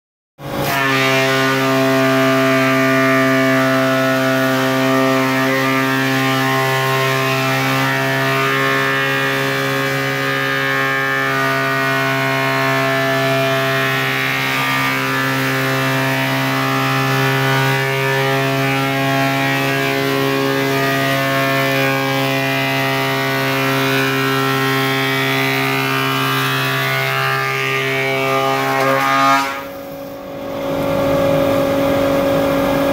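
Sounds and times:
planing machine hum: 0:00.4 - 0:32.9.

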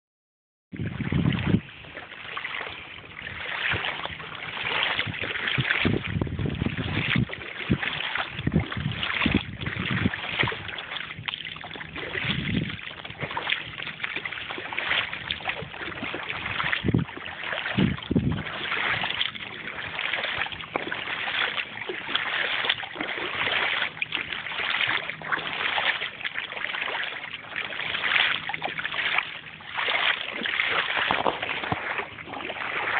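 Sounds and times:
wind buffeting microphone: 0:00.7 - 0:02.0, 0:02.8 - 0:25.9
water splashing along boat hull: 0:00.7 - 0:32.9.

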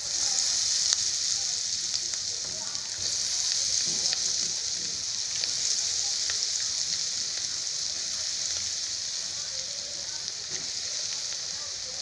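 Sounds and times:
deep-frying crackling sizzle: 0:00.0 - 0:12.0.

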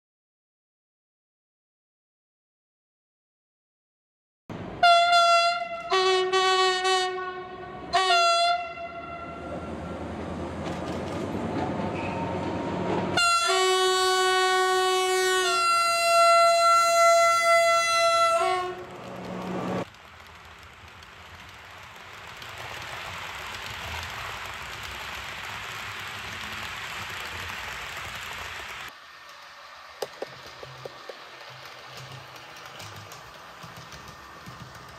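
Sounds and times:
train horn blasts: 0:04.8 - 0:10.0, 0:13.1 - 0:19.0
train running rumble: 0:09.4 - 0:34.9.

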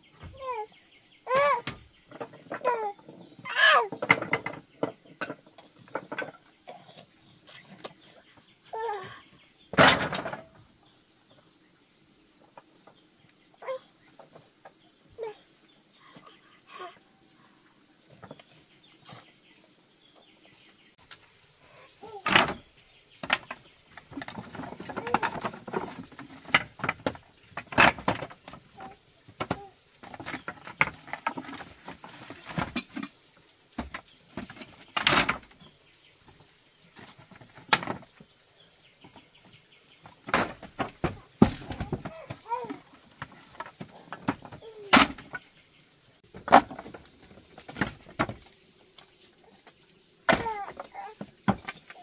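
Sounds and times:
knocks and clatter: 0:01.5 - 0:06.9, 0:09.7 - 0:10.6, 0:22.1 - 0:33.2, 0:33.8 - 0:35.7, 0:40.0 - 0:45.6, 0:46.2 - 0:48.5.

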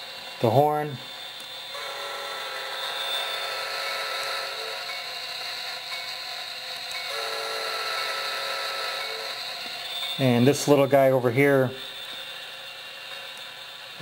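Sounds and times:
model train air horn blasts: 0:01.7 - 0:04.9, 0:07.1 - 0:12.0.

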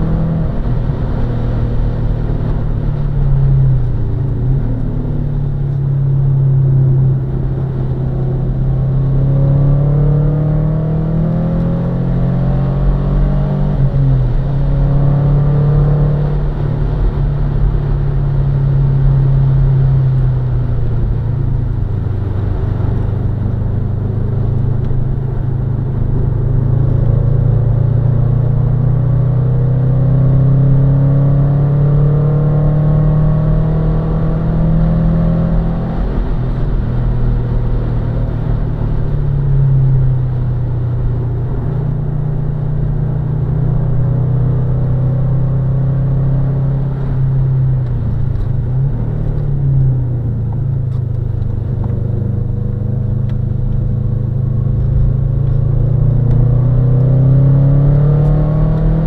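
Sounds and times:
car engine revving: 0:00.0 - 0:59.0
low road and wind rumble: 0:00.0 - 0:59.0.

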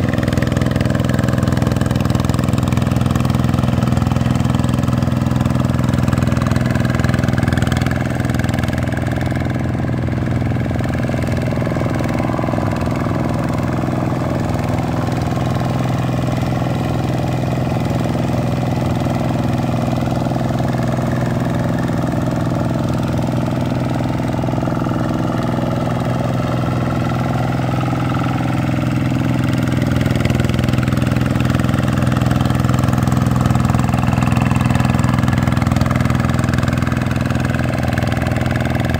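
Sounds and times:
diesel tractor engine droning: 0:00.0 - 0:38.9.

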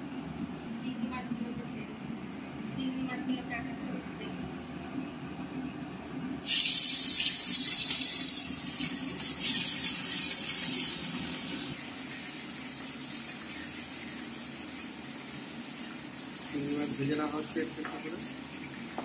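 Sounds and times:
prawns sizzling in hot oil: 0:06.4 - 0:19.0.

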